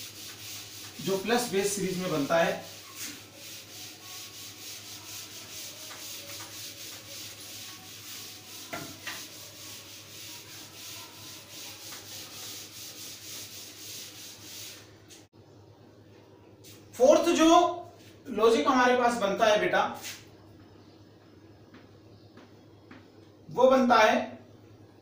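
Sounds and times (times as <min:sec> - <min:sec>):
duster rubbing on chalkboard: 0:00.0 - 0:15.3.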